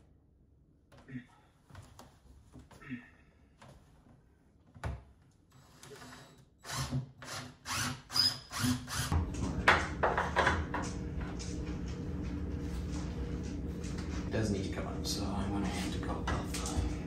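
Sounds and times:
cordless drill driving screws: 5.6s - 9.1s
steady low hum: 9.1s - 17.0s.

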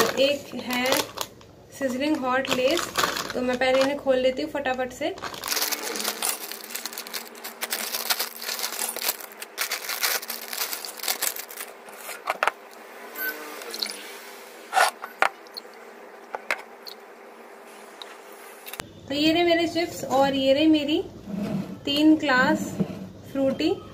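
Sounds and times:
plastic packets crinkling: 0.0s - 4.1s, 4.7s - 12.4s
chips rattling onto steel plate: 5.2s - 11.7s.

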